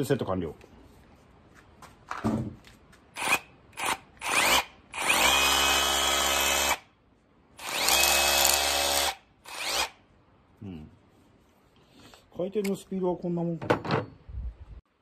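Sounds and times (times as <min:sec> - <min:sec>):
cordless drill whining: 0:03.2 - 0:06.8, 0:07.6 - 0:10.0.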